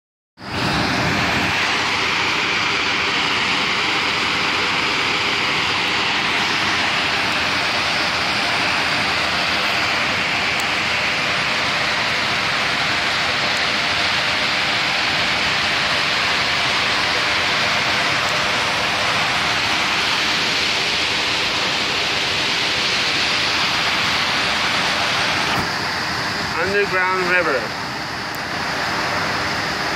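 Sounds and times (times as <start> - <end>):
water rushing down rocks: 0.4 - 29.9.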